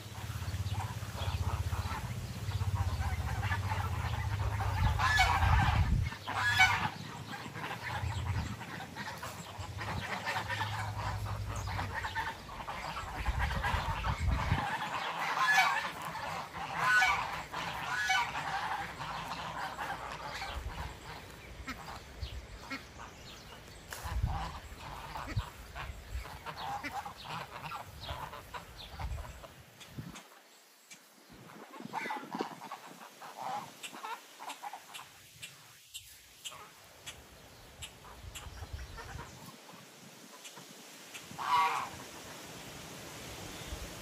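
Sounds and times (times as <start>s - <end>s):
geese honking: 0.0s - 30.3s, 30.9s - 37.2s, 37.8s - 42.4s.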